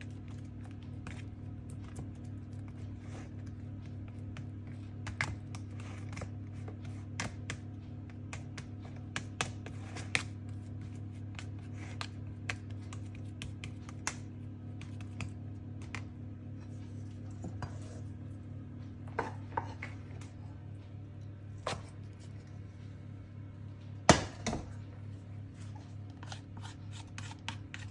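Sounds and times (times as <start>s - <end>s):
steady low hum: 0.0s - 27.9s.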